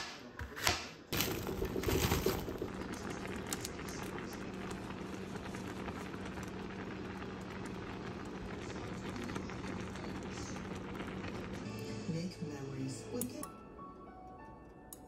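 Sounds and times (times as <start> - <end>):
sauce bubbling and crackling: 1.2 - 11.9
low even hum: 1.2 - 15.0.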